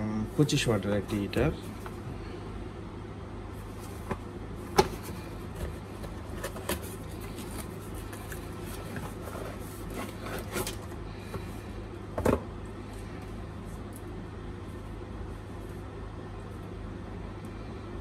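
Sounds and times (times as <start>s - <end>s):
cardboard box rustling: 3.6s - 10.9s.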